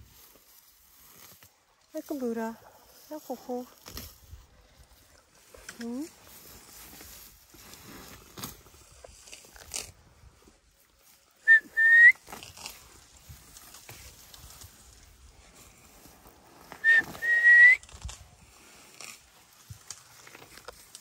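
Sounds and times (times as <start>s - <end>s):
two-note whistle: 11.5s - 12.1s, 16.8s - 17.8s.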